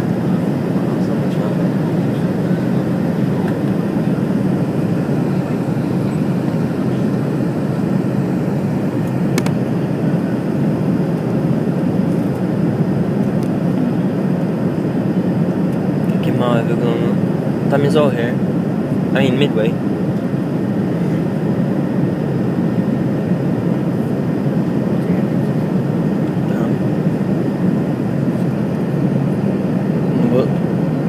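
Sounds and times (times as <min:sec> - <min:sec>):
airliner cabin drone: 0:00.0 - 0:31.0.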